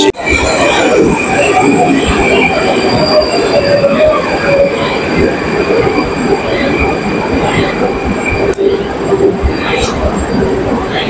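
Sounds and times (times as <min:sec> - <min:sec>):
train rumbling on rails: 0:00.0 - 0:11.0
high-pitched wheel squeal: 0:00.1 - 0:05.0.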